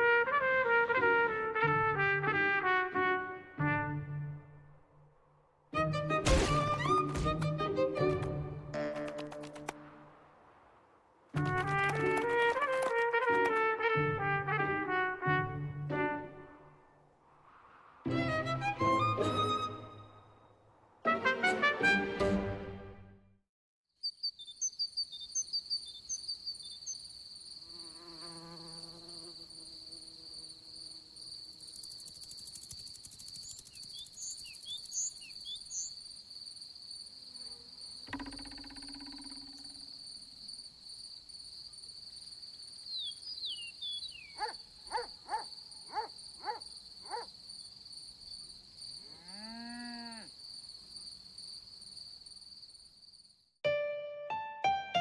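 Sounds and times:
cricket trilling: 24.0 - 53.5
insect chirps: 24.0 - 53.6
wavering insect buzz: 26.8 - 36.0, 37.0 - 40.3.

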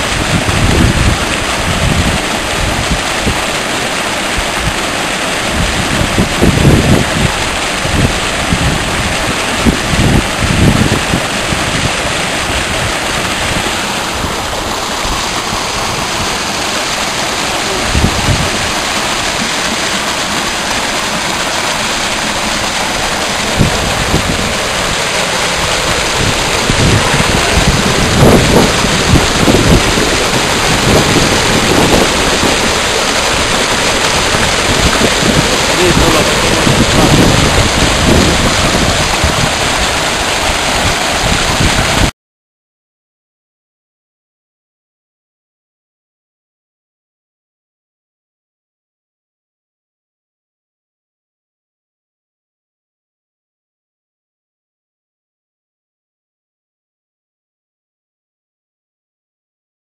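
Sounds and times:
wind buffeting microphone: 0.0 - 3.6, 4.3 - 19.6, 21.9 - 42.1
river rushing: 0.0 - 42.1.

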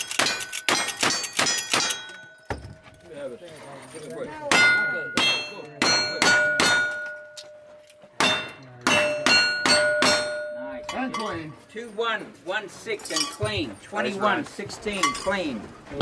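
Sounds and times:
steel plate targets ringing: 0.0 - 2.5, 4.5 - 11.5.

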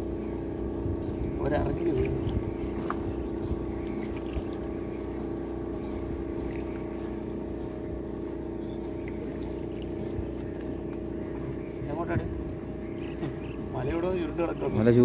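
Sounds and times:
boat engine droning: 0.0 - 15.0
water drips and small clicks: 1.7 - 4.7, 8.8 - 11.1.

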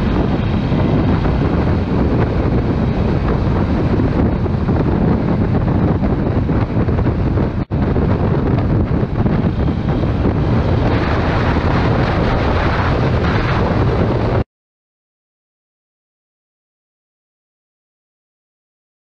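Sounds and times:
wind buffeting microphone: 0.0 - 14.5.

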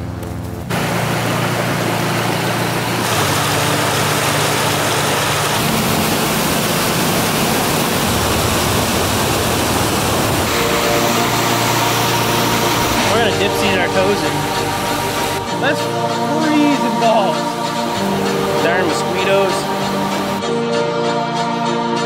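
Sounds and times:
waterfall rushing over rocks: 0.7 - 20.4.

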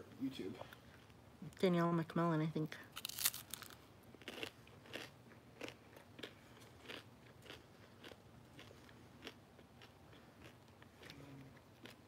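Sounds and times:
person chewing crunchy snack: 3.0 - 12.0.

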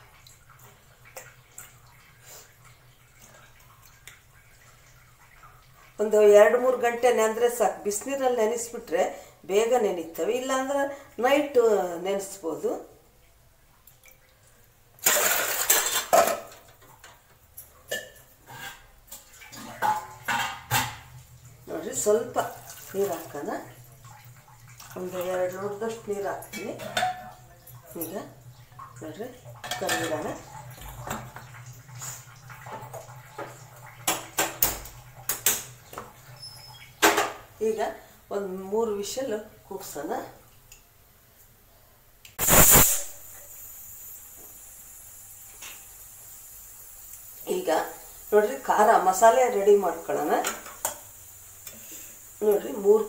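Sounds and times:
chickpeas rattling in metal pot: 15.0 - 16.2
metal pots knocking: 19.6 - 21.1, 26.6 - 27.4, 29.6 - 30.4.

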